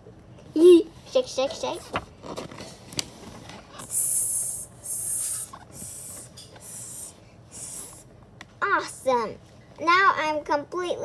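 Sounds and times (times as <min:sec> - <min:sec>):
book page turning: 0:01.8 - 0:03.9
person hissing: 0:03.9 - 0:08.0.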